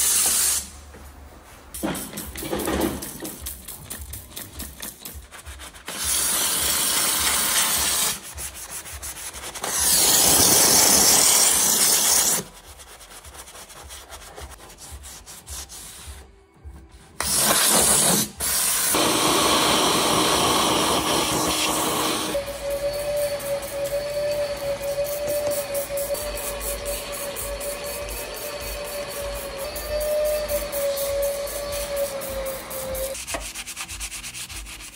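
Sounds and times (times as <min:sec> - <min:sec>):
steam cleaner jet hissing: 0:00.0 - 0:00.7, 0:17.2 - 0:33.2
vacuum nozzle sucking: 0:17.2 - 0:33.2
brush scrubbing metal floor: 0:19.0 - 0:34.9.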